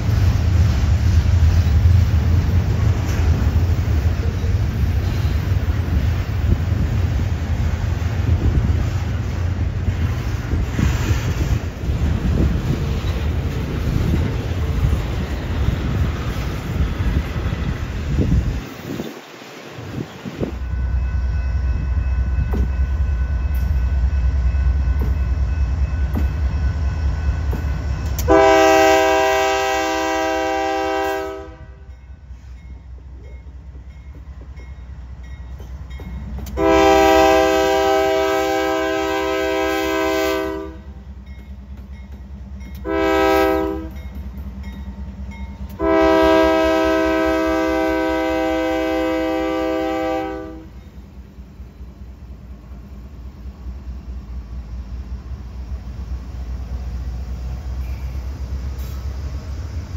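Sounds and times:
rumble of passing train: 0.0 - 59.9
locomotive air horn blasts: 28.2 - 31.9, 36.6 - 41.0, 42.8 - 44.0, 45.8 - 50.8.

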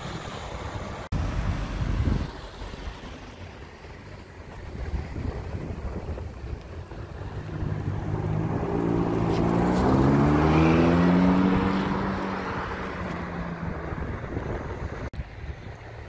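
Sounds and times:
sports car accelerating hard: 7.2 - 15.1.

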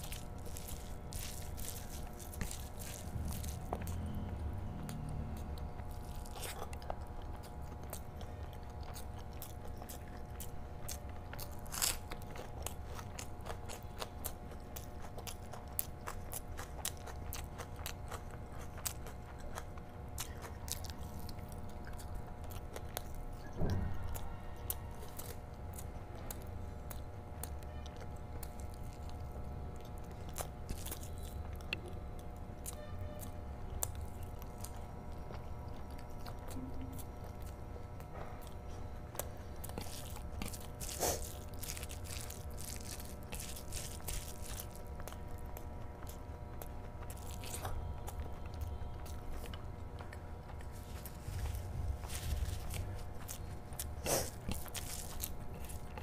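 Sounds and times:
close chewing: 0.0 - 56.0
faint steady hum: 0.0 - 56.0.

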